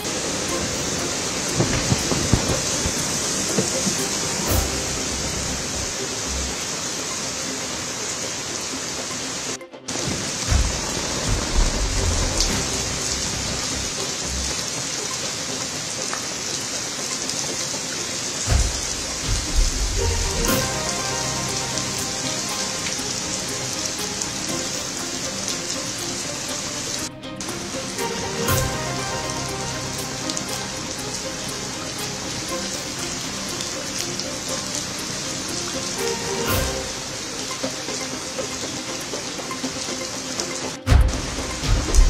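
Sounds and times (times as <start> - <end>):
heavy rain pouring onto road: 0.0 - 42.0
wind gusting against microphone: 0.2 - 5.9.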